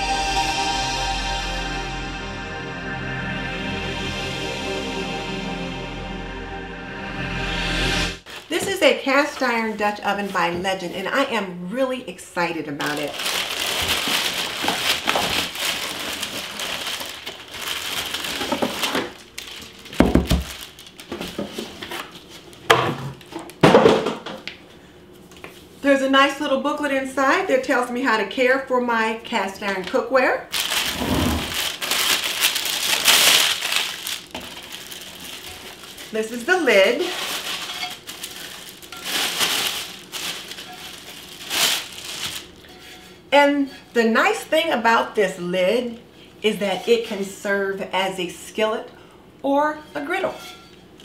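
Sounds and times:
paper and plastic wrap crinkling: 0:12.8 - 0:22.6, 0:30.5 - 0:43.0.

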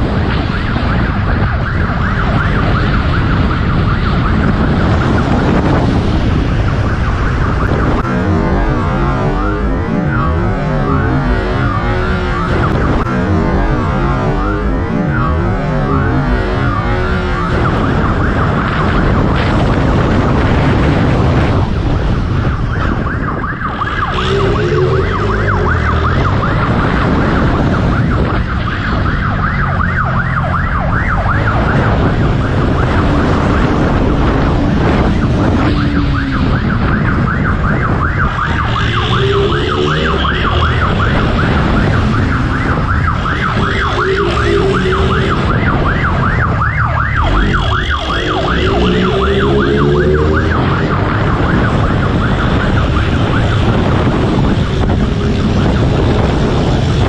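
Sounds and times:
police siren warbling yelp: 0:00.0 - 0:20.4, 0:21.5 - 0:57.0
road noise: 0:00.0 - 0:57.0
engine revving: 0:24.0 - 0:27.6, 0:38.6 - 0:45.8, 0:47.2 - 0:51.7.

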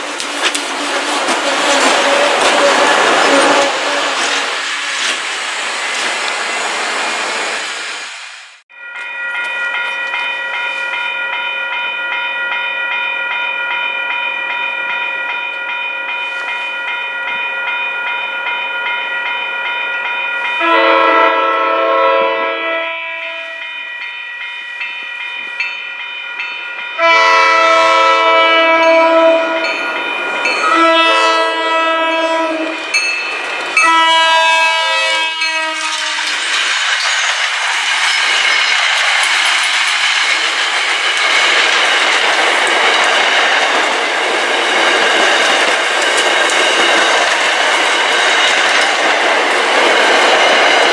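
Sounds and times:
train wheels on rails: 0:00.0 - 0:50.9
crossing bell ringing: 0:08.7 - 0:50.9
train air horn blasts: 0:20.6 - 0:23.6, 0:27.0 - 0:29.9, 0:30.6 - 0:32.9, 0:33.8 - 0:36.3.

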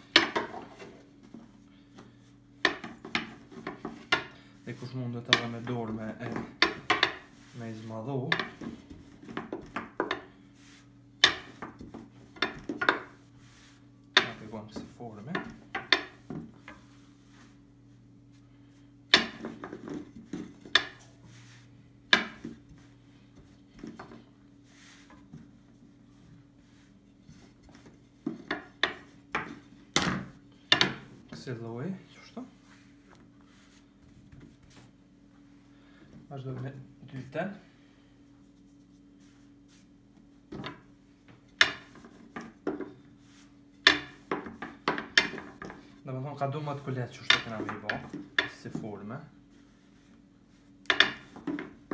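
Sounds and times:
rolling pin rubbing dough: 0:00.0 - 0:35.2, 0:38.4 - 0:51.9
low steady hum: 0:00.0 - 0:51.9
rolling pin knocking on wooden table: 0:02.6 - 0:04.3, 0:05.2 - 0:07.5, 0:08.3 - 0:10.3, 0:11.2 - 0:13.2, 0:14.2 - 0:16.8, 0:19.1 - 0:21.1, 0:22.1 - 0:22.8, 0:27.7 - 0:31.1, 0:43.8 - 0:45.8, 0:50.8 - 0:51.9
rolling pin knocking on table: 0:05.2 - 0:07.5, 0:11.2 - 0:13.2, 0:14.2 - 0:16.8, 0:22.1 - 0:22.7.

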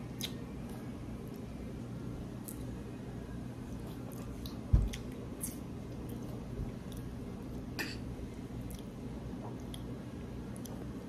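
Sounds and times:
steady low hum: 0:00.0 - 0:11.0
lip smacks and clicks: 0:00.2 - 0:00.8.

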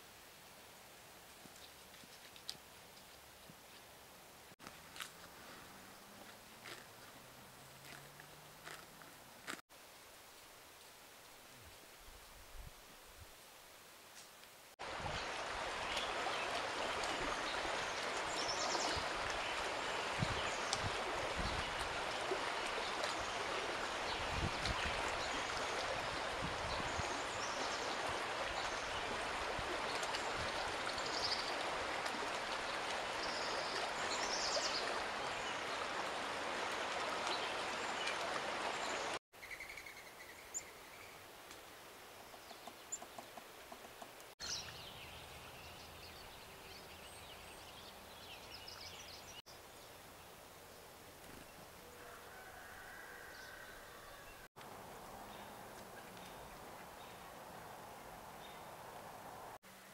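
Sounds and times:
river rushing over stones: 0:14.8 - 0:39.2.

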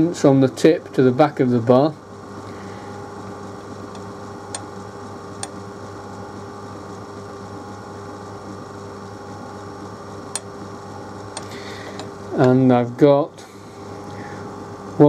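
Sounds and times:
low workshop hum: 0:00.0 - 0:15.0
micrometer clicks: 0:03.9 - 0:04.8, 0:05.4 - 0:05.6, 0:10.3 - 0:10.7, 0:11.3 - 0:12.6.

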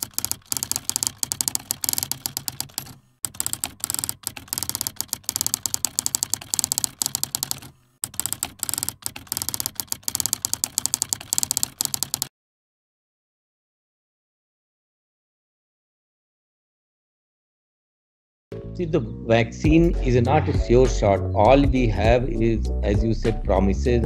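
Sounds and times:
keyboard key clicks: 0:00.0 - 0:12.3.

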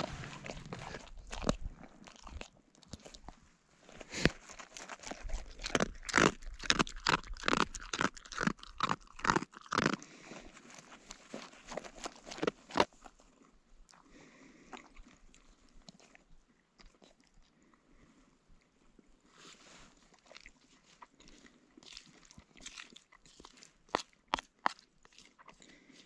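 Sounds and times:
sharp crunching: 0:00.0 - 0:13.3.

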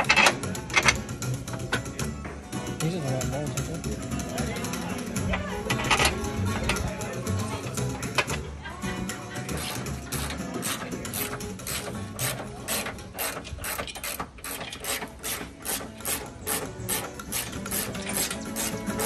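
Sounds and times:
ratchet wrench clicking: 0:09.6 - 0:19.0.

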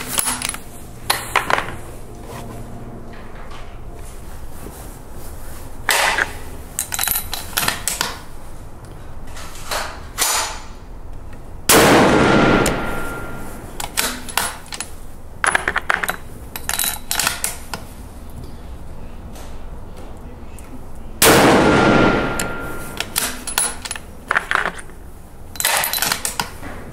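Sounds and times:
loud rifle shot: 0:11.7 - 0:13.5, 0:21.2 - 0:22.9
sharp cracks: 0:11.7 - 0:14.8.

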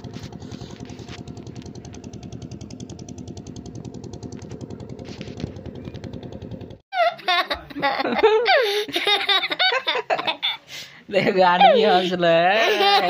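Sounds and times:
small engine running: 0:00.0 - 0:06.8.

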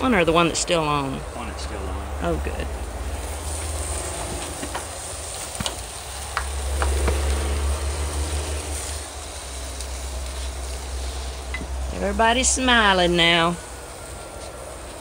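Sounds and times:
steak sizzling on a grill: 0:00.0 - 0:15.0.

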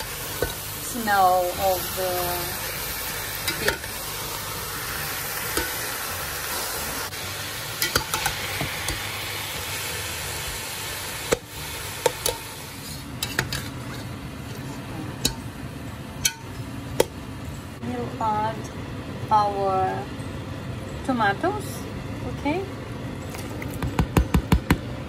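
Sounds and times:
meat and onions sizzling: 0:00.0 - 0:20.0
metal spatula scraping a pot: 0:12.2 - 0:14.6.

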